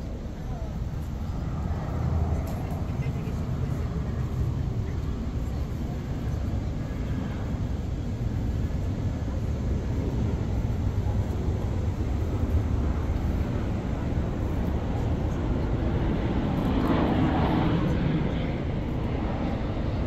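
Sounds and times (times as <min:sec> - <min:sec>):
city traffic rumble: 0:00.0 - 0:20.0.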